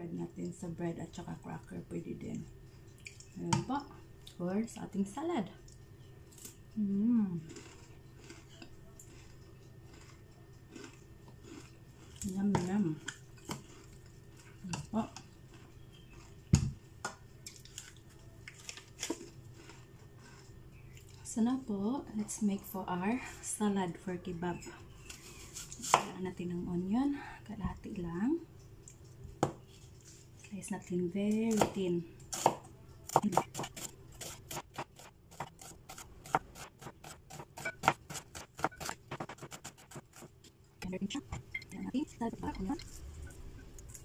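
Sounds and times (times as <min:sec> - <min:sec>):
knife slicing onion on board: 0:31.5 - 0:40.3.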